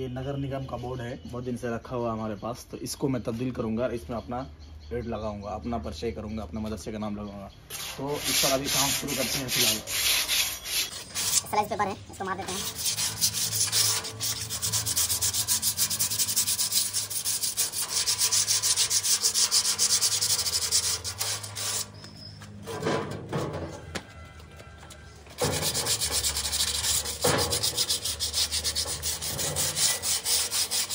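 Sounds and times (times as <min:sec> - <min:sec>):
abrasive pad scraping sheet metal: 0:07.7 - 0:23.9, 0:25.4 - 0:30.9.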